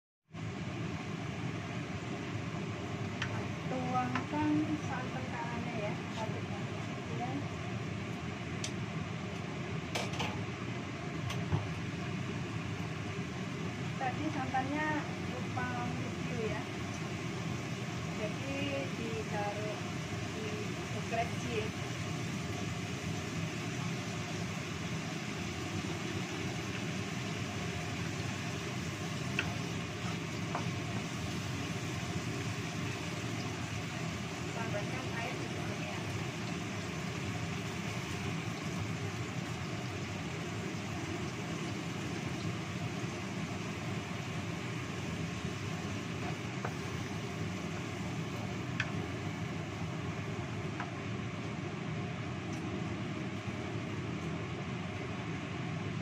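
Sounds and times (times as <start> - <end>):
sauce simmering hiss: 0.3 - 56.0
wooden spatula knocking wok: 29.3 - 31.0.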